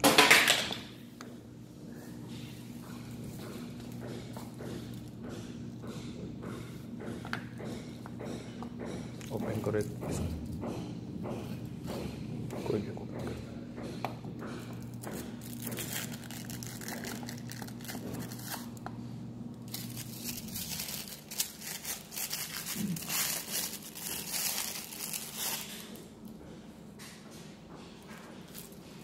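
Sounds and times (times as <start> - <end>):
wrapping crinkling: 14.9 - 18.8, 19.6 - 26.1.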